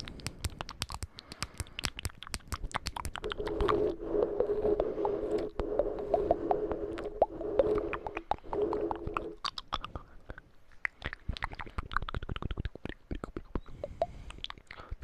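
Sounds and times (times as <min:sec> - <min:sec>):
wet mouth clicks: 0:00.0 - 0:15.0
steady low tone: 0:03.2 - 0:09.4.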